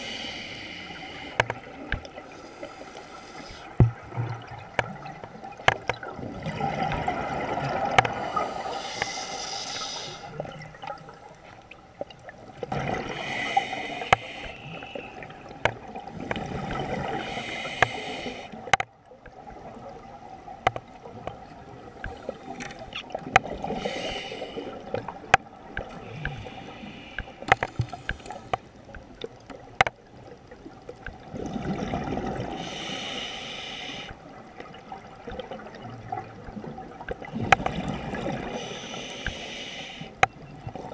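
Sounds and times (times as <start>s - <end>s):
hissing regulator inhales: 0.0s - 1.5s, 2.3s - 3.8s, 8.2s - 10.4s, 13.1s - 15.2s, 17.1s - 18.6s, 23.7s - 24.8s, 26.0s - 28.5s, 32.6s - 34.2s, 38.5s - 40.2s.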